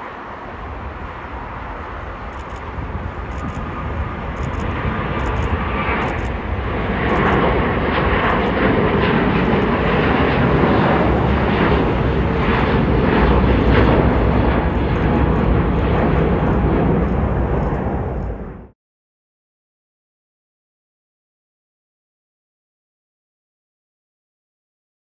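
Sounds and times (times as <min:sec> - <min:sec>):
jet engines roaring at takeoff: 0:00.0 - 0:18.8.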